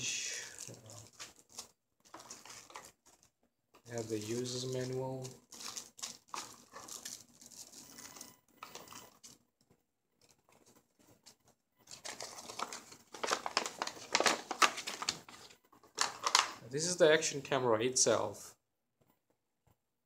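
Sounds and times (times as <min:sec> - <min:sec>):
paper rustling and crinkling: 0:00.4 - 0:07.8, 0:10.2 - 0:16.6.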